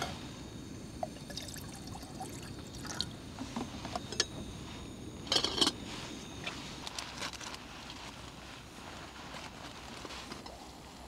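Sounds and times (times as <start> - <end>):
gas stove burning: 0.0 - 11.0.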